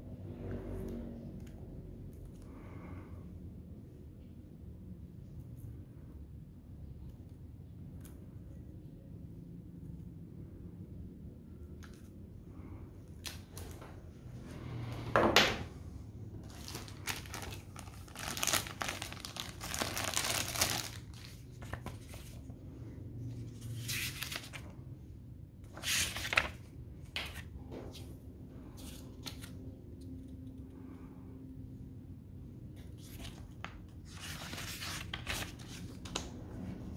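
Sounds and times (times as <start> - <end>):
plastic bag crinkling: 16.4 - 22.0
paper rustling: 16.4 - 22.5, 23.7 - 24.7, 25.7 - 28.1, 32.8 - 36.3.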